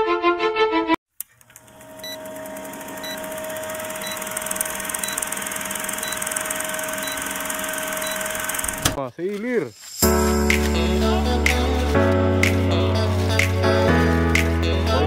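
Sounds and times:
film projector whirr: 1.2s - 9.0s.

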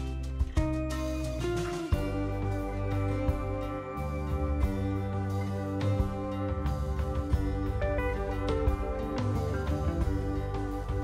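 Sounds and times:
plucked guitar music: 0.0s - 11.0s.

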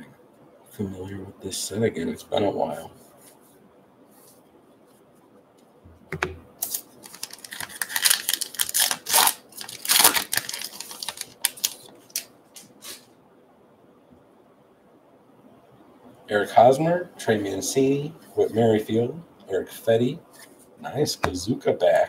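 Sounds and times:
card pack wrapper crinkling: 6.6s - 12.3s.

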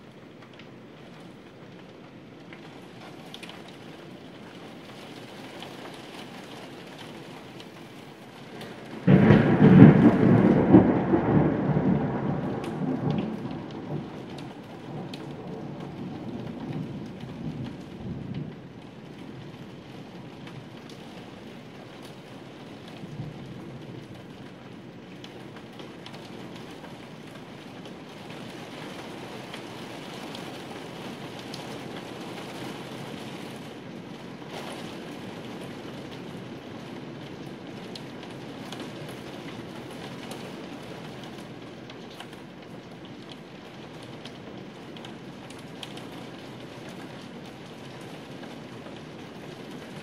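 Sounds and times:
steady rain: 0.0s - 50.0s
thunder clap and rumble: 8.5s - 24.6s.

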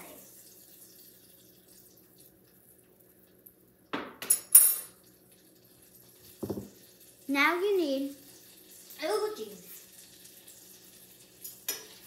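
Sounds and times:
dishes and utensils clattering: 4.0s - 5.0s, 6.4s - 6.8s, 11.4s - 12.0s.

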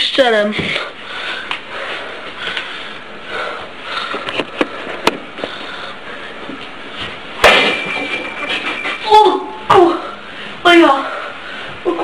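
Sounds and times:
high metallic ring: 7.6s - 9.6s.

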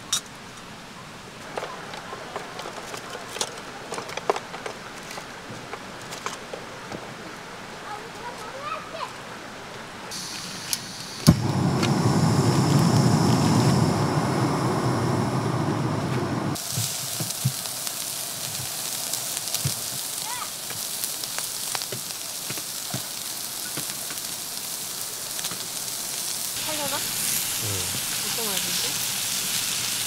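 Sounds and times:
pork sizzling on griddle pan: 10.1s - 13.8s, 16.6s - 30.0s
gas burner flame rushing: 10.1s - 30.0s
camping stove ignition click: 10.3s - 13.9s.

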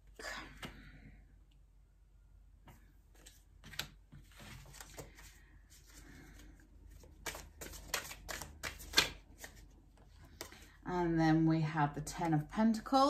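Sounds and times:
cards clicking and sliding: 3.2s - 5.3s, 5.9s - 9.7s
cards snapping: 7.2s - 9.6s.

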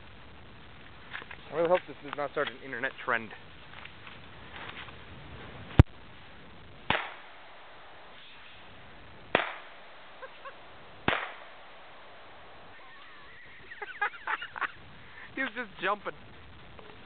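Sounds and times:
gunshots echoing through trees: 6.8s - 8.4s, 9.3s - 12.6s.

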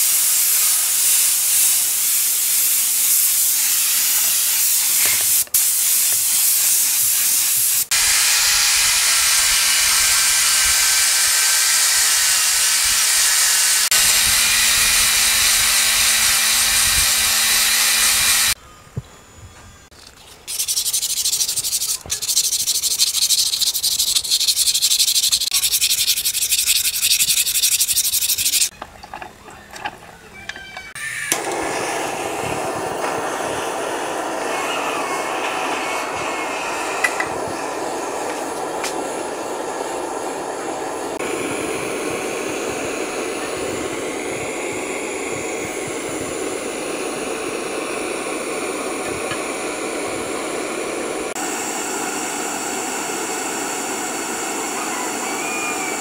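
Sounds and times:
aerosol spray can hissing: 0.0s - 18.6s, 20.5s - 28.7s
sanding on steel: 20.5s - 28.7s.

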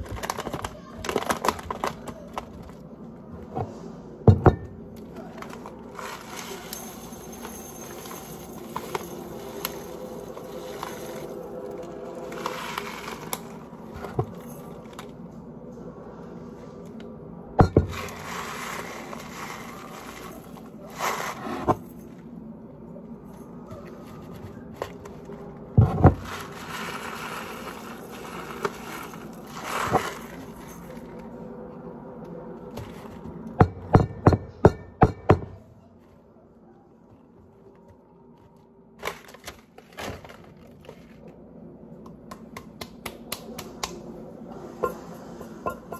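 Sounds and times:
plastic bag crinkling: 0.0s - 2.8s, 5.2s - 15.1s, 18.0s - 21.4s, 26.2s - 31.2s
rice pouring into a cup: 5.8s - 13.9s, 17.9s - 21.5s, 26.2s - 31.0s.

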